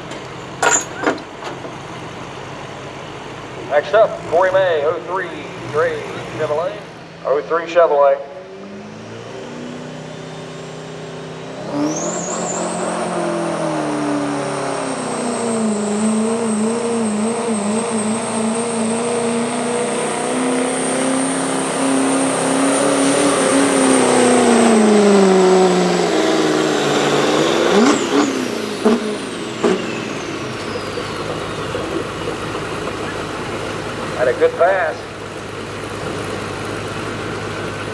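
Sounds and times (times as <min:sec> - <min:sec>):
diesel pickup engine at full throttle: 0:00.0 - 0:37.9
turbocharger whistle: 0:09.8 - 0:31.2.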